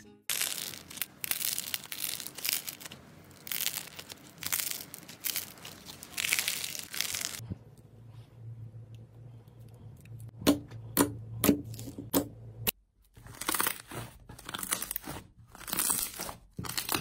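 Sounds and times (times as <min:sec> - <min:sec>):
slime crackling and crinkling: 0:00.3 - 0:07.4, 0:13.1 - 0:17.0.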